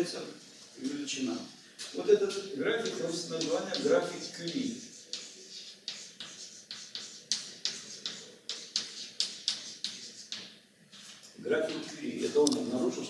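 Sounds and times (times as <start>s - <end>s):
chalk tapping and scraping on blackboard: 2.3s - 11.9s.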